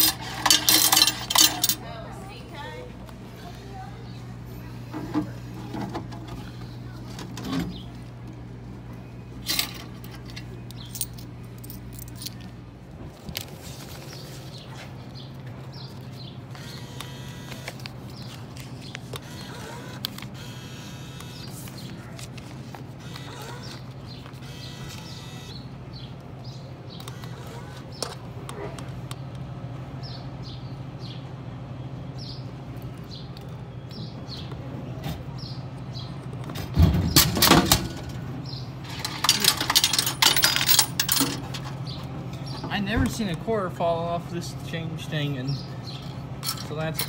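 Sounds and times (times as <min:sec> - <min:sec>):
coins clinking: 0:00.0 - 0:01.8, 0:09.4 - 0:12.5, 0:38.8 - 0:41.6
vending machines humming: 0:00.0 - 0:47.0.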